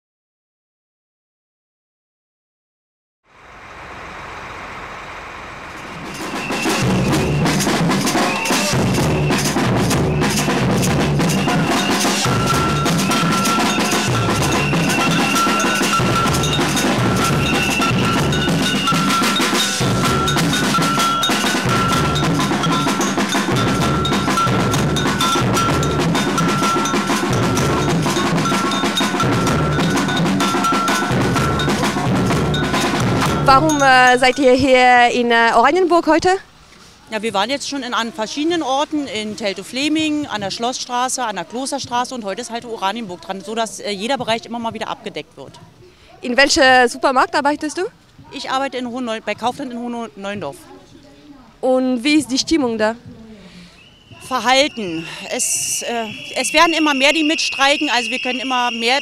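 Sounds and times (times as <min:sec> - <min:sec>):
high ringing note: 0:05.8 - 0:34.9, 0:54.1 - 0:59.0
snare drum and cymbal drumming: 0:05.9 - 0:34.3, 0:54.1 - 0:59.0.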